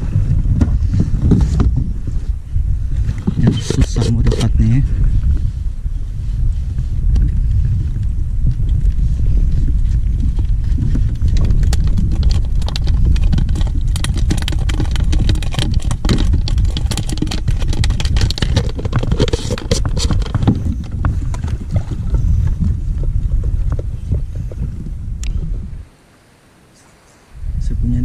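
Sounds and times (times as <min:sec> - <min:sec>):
wind rumbling on microphone: 0:00.0 - 0:28.0
water knocks and splashes on hull: 0:00.2 - 0:01.9, 0:09.6 - 0:24.7.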